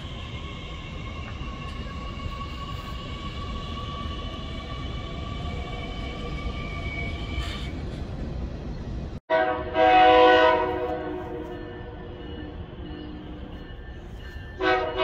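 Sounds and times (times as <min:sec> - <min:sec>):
electric train rumbling and whining: 0:00.0 - 0:15.0
train horn chord: 0:09.3 - 0:12.6, 0:14.6 - 0:15.0.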